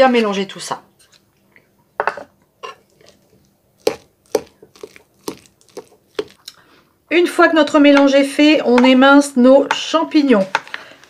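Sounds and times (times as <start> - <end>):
spoon scraping a ceramic bowl: 2.6 - 6.3.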